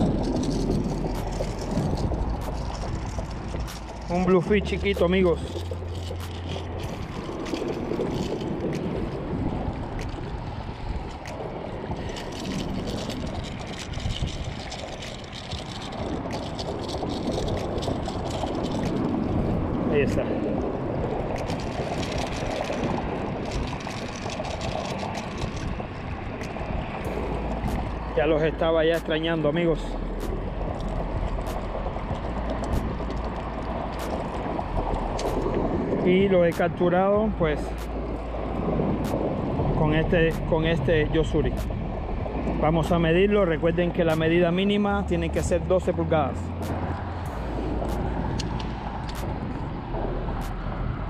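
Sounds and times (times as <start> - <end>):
small waves lapping: 0.0 - 50.6
wind on microphone: 0.0 - 51.0.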